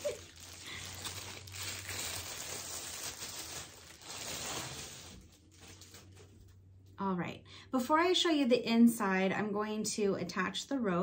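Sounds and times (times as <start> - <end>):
plastic wrapping crinkling: 0.0 - 6.6.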